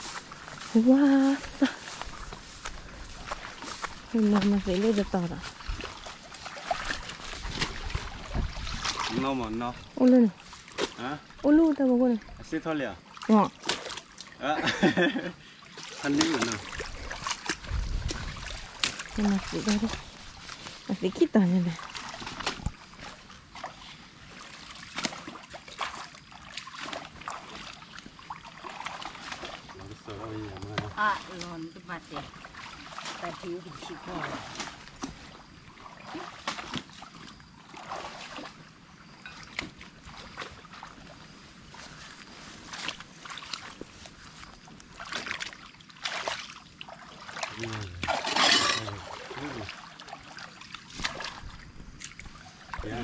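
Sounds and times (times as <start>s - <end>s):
water splashing and trickling: 0.0s - 53.0s
sharp splashes or knocks: 3.3s - 11.1s, 13.2s - 14.1s, 15.8s - 20.5s, 24.7s - 27.8s, 36.0s - 37.1s, 47.2s - 52.3s.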